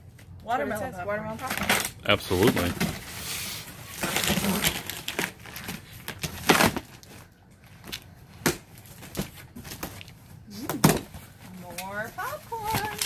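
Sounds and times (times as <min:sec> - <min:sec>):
box cutter slitting packing tape: 0:04.0 - 0:06.9.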